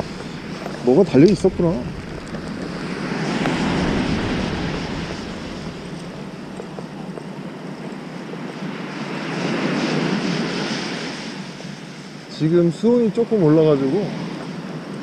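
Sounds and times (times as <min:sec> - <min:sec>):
sea surf breaking on beach: 0:00.0 - 0:06.4
wind buffeting microphone: 0:00.0 - 0:15.0.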